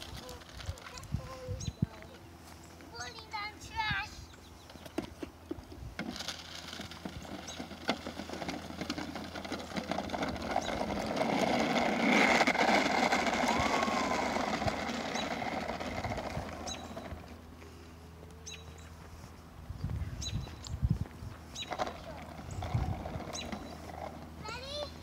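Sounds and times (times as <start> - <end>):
toy wheels rattling on asphalt: 0.0 - 1.7, 3.0 - 17.6, 21.4 - 25.0.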